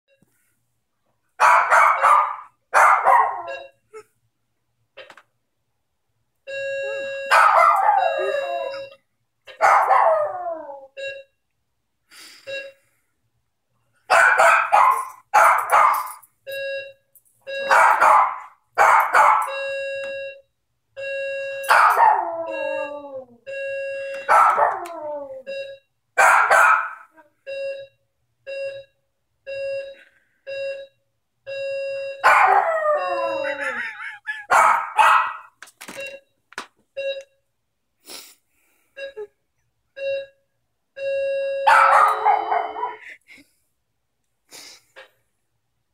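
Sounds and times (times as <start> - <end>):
electronic doorbell chime: 6.5 - 9.1, 16.0 - 18.0, 19.1 - 20.4, 21.0 - 24.5, 28.5 - 33.6, 41.0 - 43.0
dog howling and barking: 7.3 - 8.9, 9.6 - 10.9, 21.7 - 23.3, 24.3 - 25.5, 32.2 - 35.4, 41.7 - 43.0.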